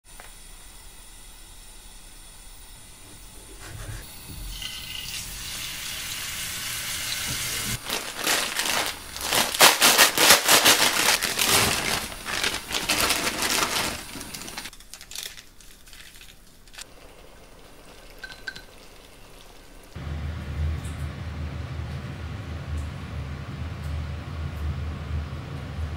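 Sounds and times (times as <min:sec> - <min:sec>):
water boiling in a pot: 0:00.1 - 0:09.3, 0:16.4 - 0:21.3
plastic packet crinkling: 0:07.8 - 0:16.9.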